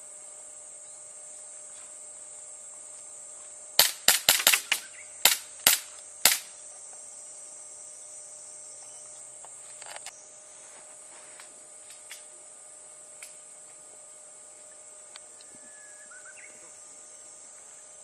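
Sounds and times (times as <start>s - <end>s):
airsoft gun shots: 3.8s - 6.5s.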